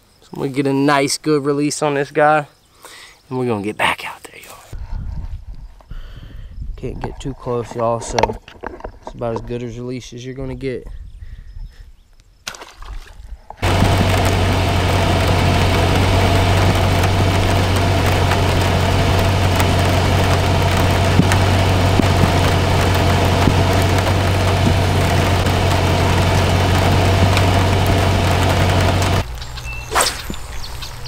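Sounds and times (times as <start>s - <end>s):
engine-like hum with low drone: 13.6s - 31.0s.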